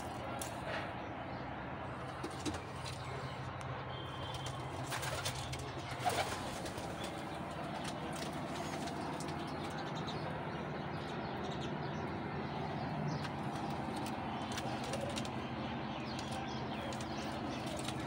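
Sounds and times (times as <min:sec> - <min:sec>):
pigeons cooing: 0:13.1 - 0:18.0.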